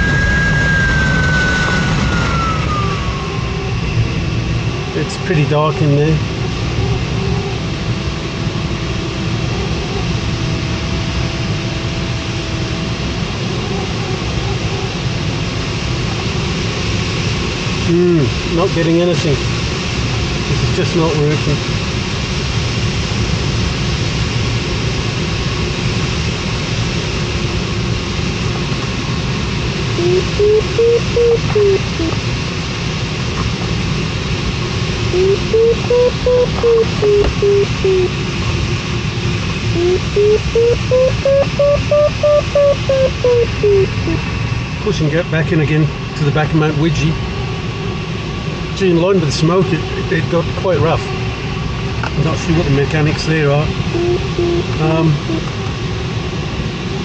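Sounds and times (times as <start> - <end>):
airflow rushing over cockpit: 0.0 - 24.1
air rushing around cockpit: 0.0 - 57.0
electronic beeps: 30.0 - 32.1, 35.1 - 38.1, 39.8 - 44.2.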